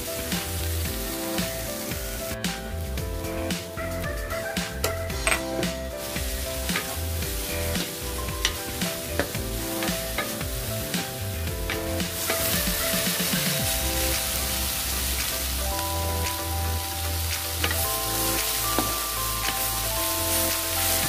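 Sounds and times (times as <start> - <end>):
soft background music: 0.0 - 21.0
vegetables sizzling in a wok: 0.0 - 21.0
wooden spatula scraping pan: 6.0 - 15.6.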